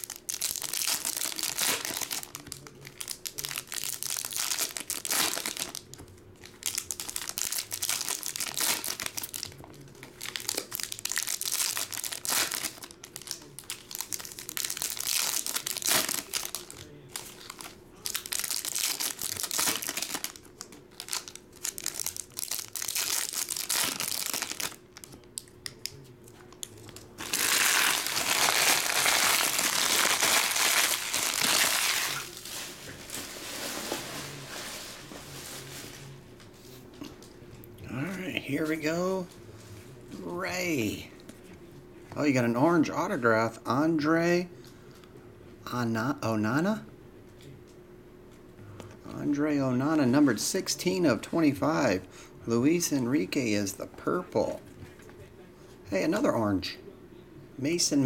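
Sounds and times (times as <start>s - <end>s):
foil wrappers tearing and crinkling: 0.0s - 25.2s, 26.8s - 35.9s.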